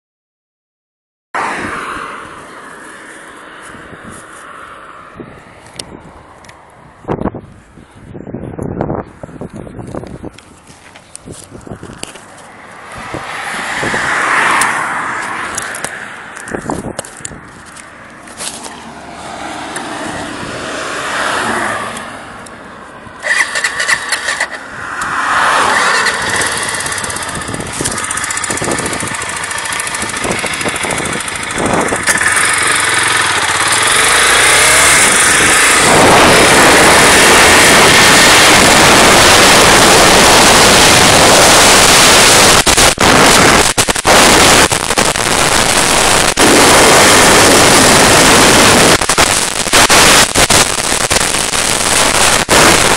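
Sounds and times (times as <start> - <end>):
wind rush on microphone: 3.4 - 17.8, 19.2 - 21.9, 24.6 - 52.9
motorcycle engine accelerating: 23.2 - 52.9.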